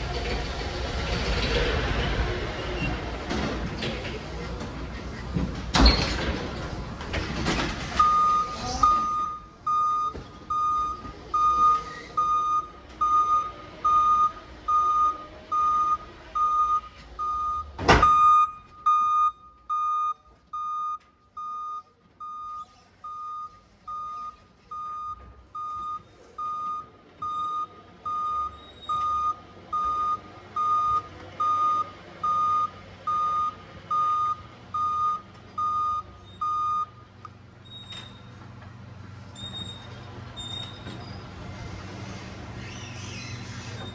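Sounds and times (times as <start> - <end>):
forklift reversing alarm beeping: 8.0 - 38.2.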